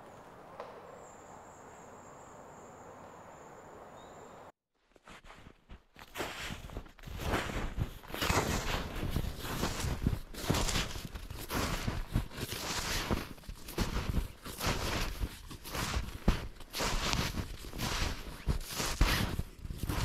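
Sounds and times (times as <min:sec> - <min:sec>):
footsteps crunching through snow: 0:04.8 - 0:20.0.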